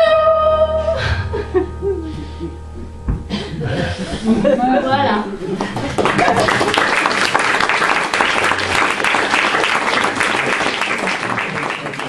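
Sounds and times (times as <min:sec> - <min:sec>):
audience applauding: 0:05.6 - 0:12.0.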